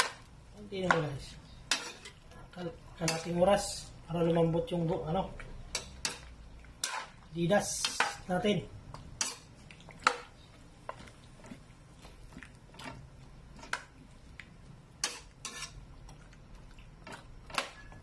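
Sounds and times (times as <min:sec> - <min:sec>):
metal spatula scraping a wok: 0:00.9 - 0:02.2, 0:03.0 - 0:03.8, 0:05.7 - 0:08.2, 0:15.0 - 0:15.8.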